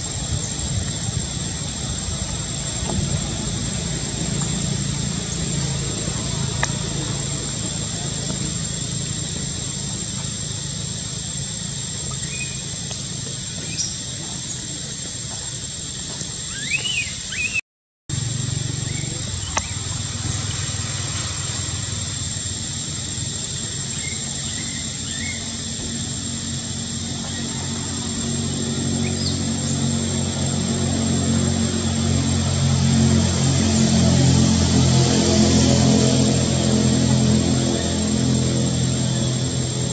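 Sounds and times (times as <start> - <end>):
low rumble: 0.0 - 16.4
high-pitched drone: 0.0 - 17.6, 18.2 - 39.9.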